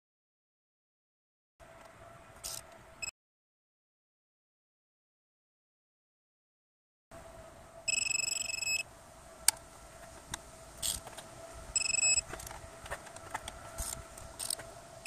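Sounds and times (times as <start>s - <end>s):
torque wrench beeping: 7.9s - 8.8s, 11.8s - 12.3s.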